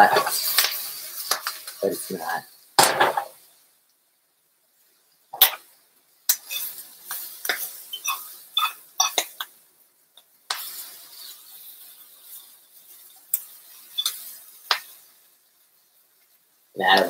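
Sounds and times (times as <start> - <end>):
greens sizzling: 0.0 - 17.0.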